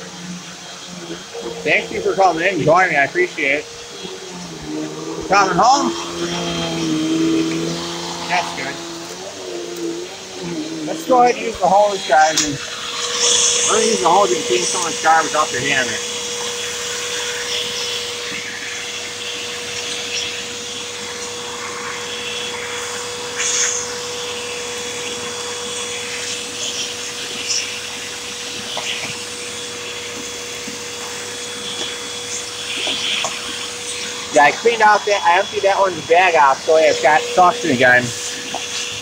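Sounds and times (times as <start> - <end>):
vacuum cleaner running: 0.0 - 39.0.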